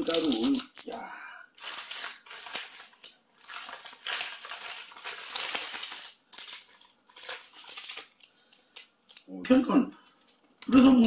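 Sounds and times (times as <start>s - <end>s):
plastic packet crinkling: 0.0s - 1.0s, 1.6s - 9.3s.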